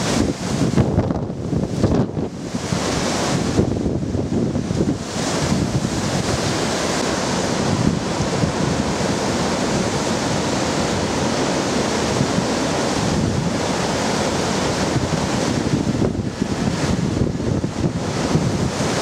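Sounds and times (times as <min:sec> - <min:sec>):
strong wind with rain: 0:00.0 - 0:19.0.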